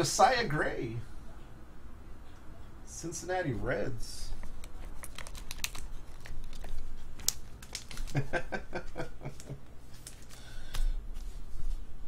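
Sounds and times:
trading cards clicking and rustling: 4.3 - 11.4.

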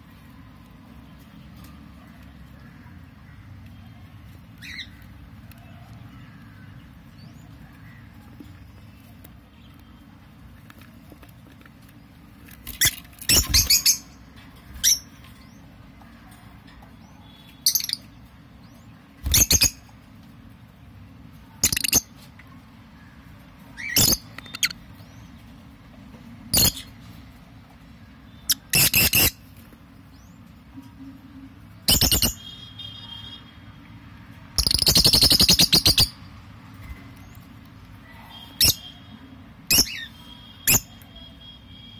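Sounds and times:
lovebirds shrill calls: 4.6 - 5.0, 12.6 - 15.6, 17.2 - 18.1, 19.2 - 19.9, 21.6 - 22.1, 23.8 - 24.8, 28.4 - 29.4, 31.9 - 32.6, 34.6 - 36.2, 38.3 - 39.1, 39.7 - 41.9.

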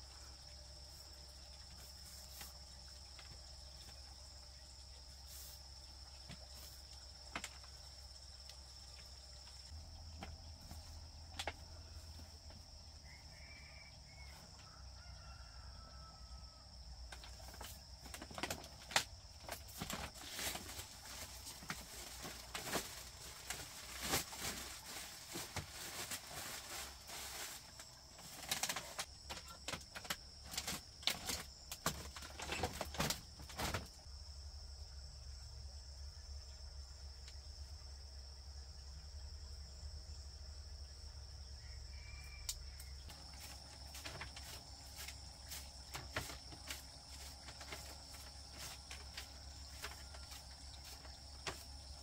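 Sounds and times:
crickets chirping: 0.0 - 52.0
plastic sack rustling: 17.4 - 33.9, 43.4 - 52.0.

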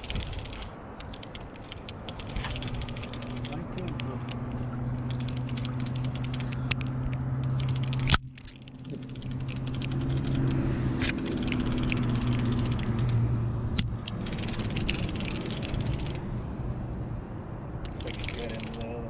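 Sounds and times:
clicks and rattles of gear: 0.0 - 4.4
low motor hum: 0.0 - 19.0.

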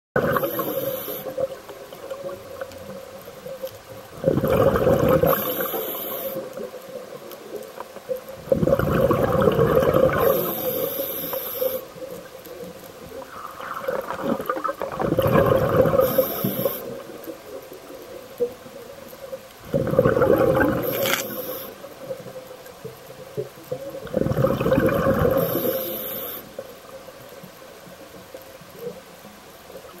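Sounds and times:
diver breathing through regulator: 0.3 - 1.4, 4.5 - 6.5, 10.1 - 11.9, 15.9 - 17.0, 25.2 - 26.5.

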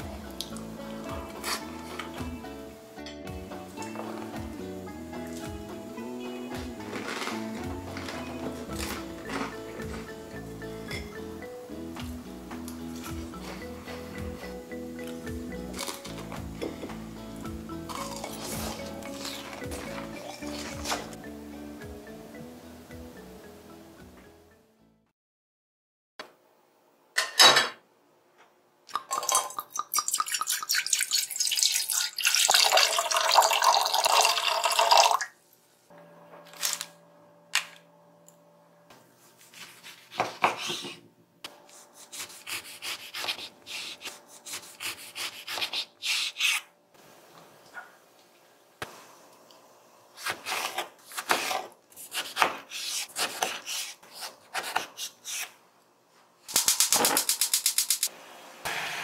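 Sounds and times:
liquid running into a saucepan: 29.0 - 35.3
knife cutting on wooden board: 41.7 - 46.6, 50.2 - 55.5.

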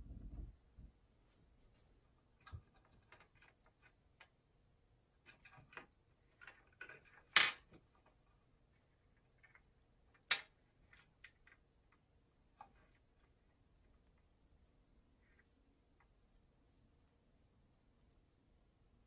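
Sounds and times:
parrots clicking plastic toy on glass: 9.4 - 11.6.

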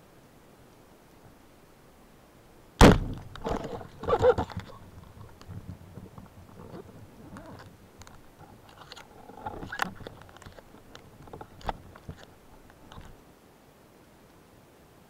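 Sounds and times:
underwater clicks and knocks: 2.9 - 13.2.

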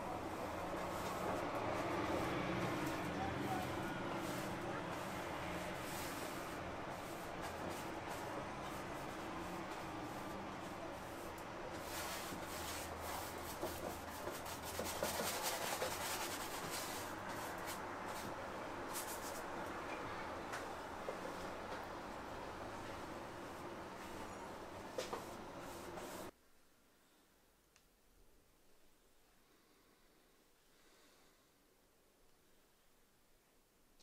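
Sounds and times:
canvases rubbing and scraping: 0.1 - 19.5.

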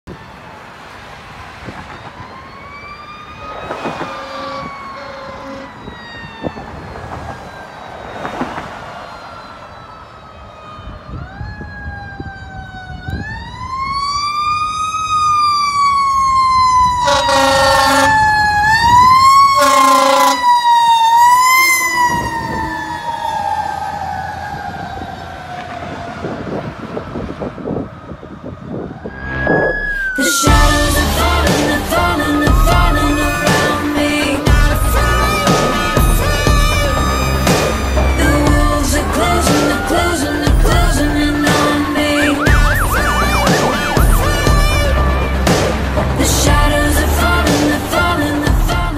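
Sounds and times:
fire truck siren wailing: 0.1 - 48.9
air horn blasts: 3.4 - 5.9, 17.0 - 18.3, 19.5 - 20.6, 34.5 - 39.0.

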